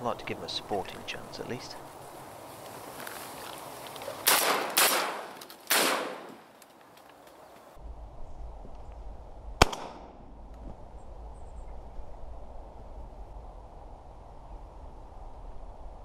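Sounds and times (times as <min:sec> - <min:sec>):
shotgun shots echoing: 0:04.2 - 0:06.4, 0:09.6 - 0:10.1.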